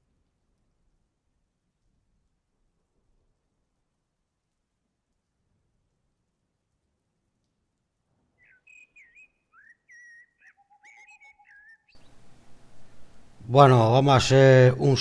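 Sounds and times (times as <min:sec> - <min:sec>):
steady hiss: 0:12.0 - 0:15.0.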